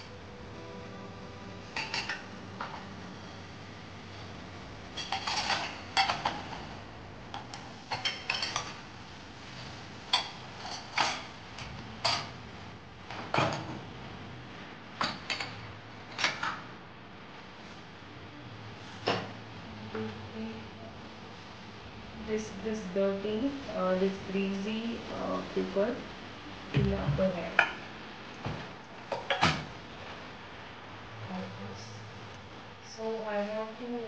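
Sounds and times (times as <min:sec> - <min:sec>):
dishes clinking in a dishwasher rack: 0:01.8 - 0:02.3, 0:05.0 - 0:06.4, 0:07.9 - 0:08.8.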